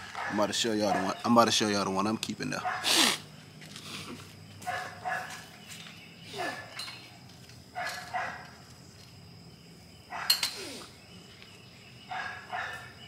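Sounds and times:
dog barking: 0.0s - 1.2s, 2.6s - 3.0s, 4.6s - 5.5s, 6.4s - 6.8s, 7.8s - 8.6s, 10.1s - 10.4s, 12.1s - 13.0s.

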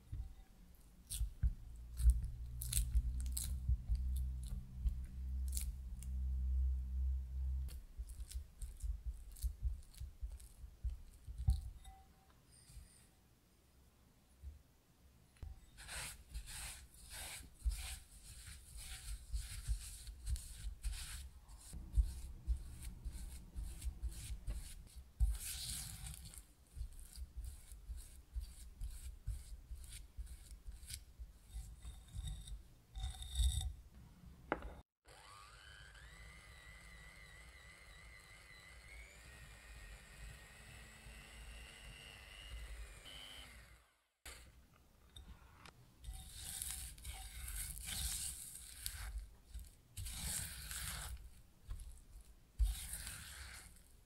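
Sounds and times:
spatula scraping glass bowl: 15.6s - 33.8s, 46.0s - 52.0s, 52.6s - 53.9s
electric hand mixer whining: 35.0s - 44.1s.

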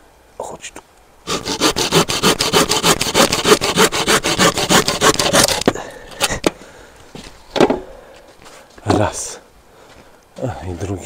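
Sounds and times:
hand saw cutting wood: 1.3s - 5.7s.

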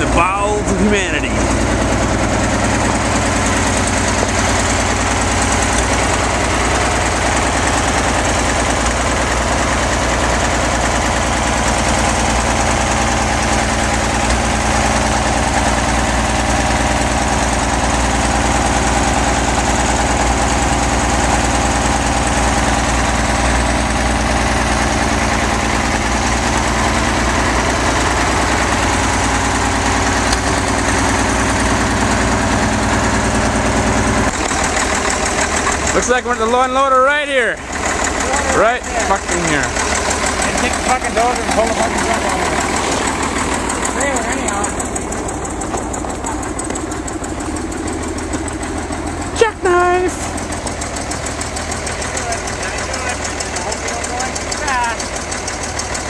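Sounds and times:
diesel engine idling: 0.0s - 56.0s.

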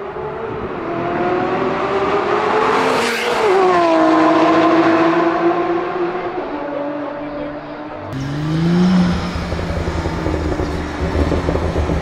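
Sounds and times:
supercar engine revving: 8.1s - 12.0s.

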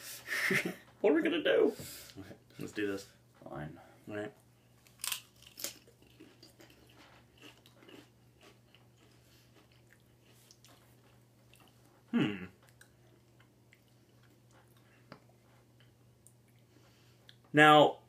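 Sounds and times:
potato chips crunching: 4.8s - 10.8s.

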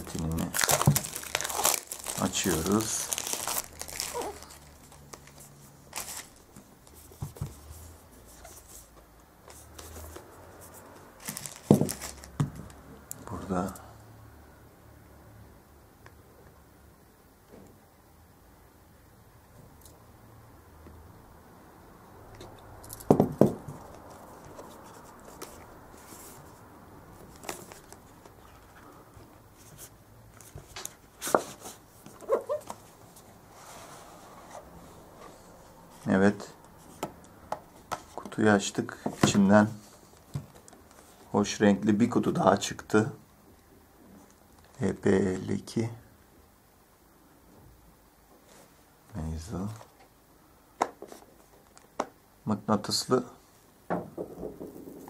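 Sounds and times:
cellophane crinkling: 0.0s - 6.5s, 11.2s - 12.4s.

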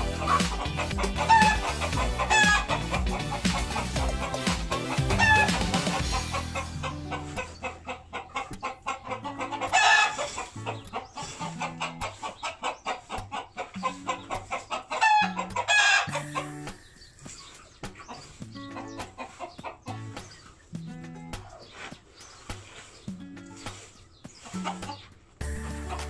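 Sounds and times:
background music with beat: 0.0s - 10.0s, 13.1s - 26.0s
loud chicken calls: 0.0s - 17.6s
chickens clucking: 0.0s - 26.0s.

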